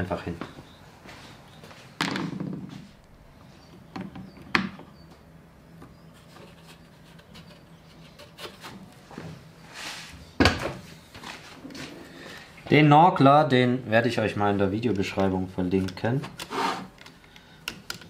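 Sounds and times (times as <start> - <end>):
wooden knocks: 2.0 - 2.8.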